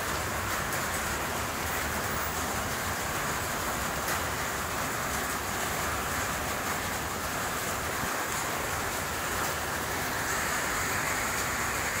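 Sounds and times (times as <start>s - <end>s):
steady background hiss: 8.7s - 12.0s.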